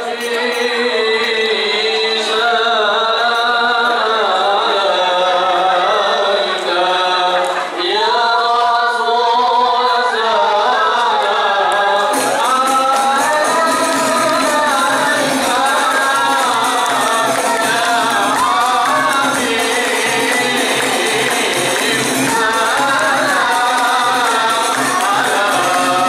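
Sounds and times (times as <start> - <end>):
man and woman singing chant: 0.0 - 26.0
frame drums with jingles: 12.1 - 26.0.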